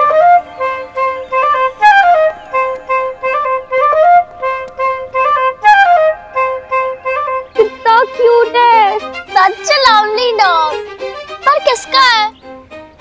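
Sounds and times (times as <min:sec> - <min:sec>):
light woodwind tune: 0:00.0 - 0:13.0.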